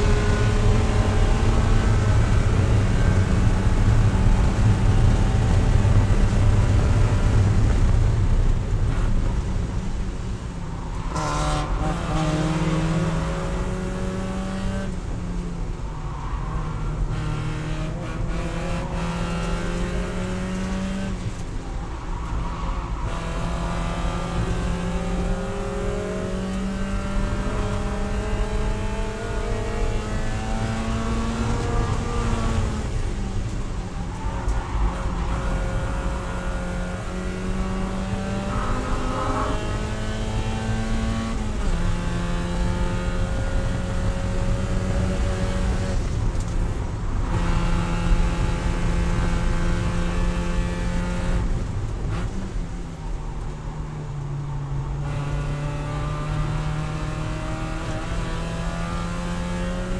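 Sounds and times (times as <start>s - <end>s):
racing engine revving: 11.0s - 15.0s, 16.7s - 21.5s, 22.5s - 33.6s, 34.4s - 52.6s, 55.0s - 59.9s.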